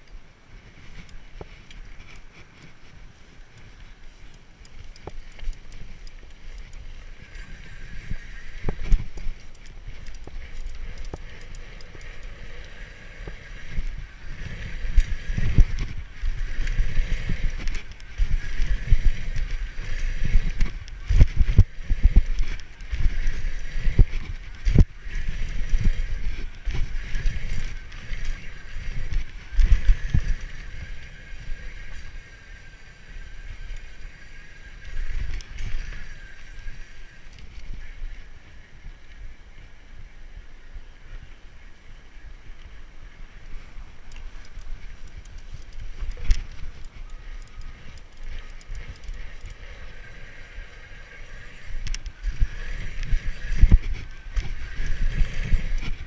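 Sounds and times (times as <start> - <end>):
bike knocking and rattling: 0.0 - 38.9, 43.4 - 56.0
wind buffeting microphone: 0.0 - 41.0, 42.2 - 56.0.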